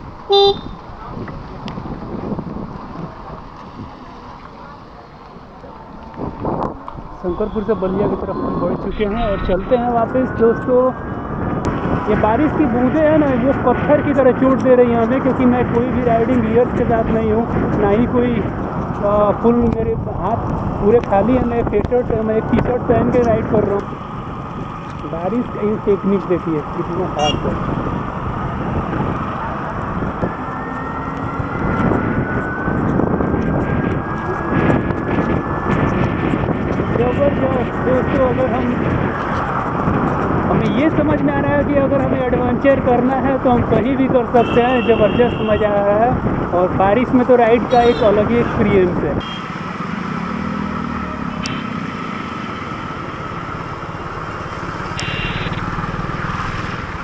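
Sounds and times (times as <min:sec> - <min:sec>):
wind rushing over microphone: 0:00.0 - 0:57.0
motorcycle engine running: 0:49.3 - 0:57.0
tyre noise on wet road: 0:49.3 - 0:57.0.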